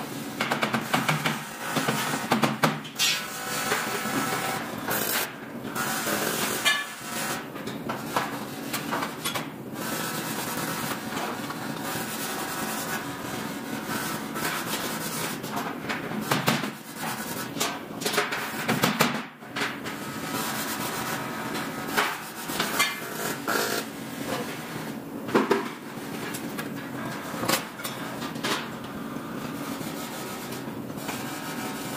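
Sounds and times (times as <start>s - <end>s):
machinery hum: 19.5s - 31.9s.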